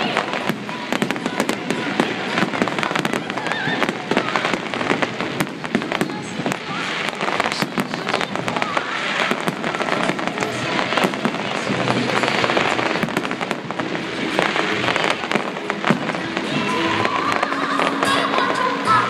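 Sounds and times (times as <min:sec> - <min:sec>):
fireworks bangs: 0:00.0 - 0:19.0
fireworks crackling: 0:00.0 - 0:19.0.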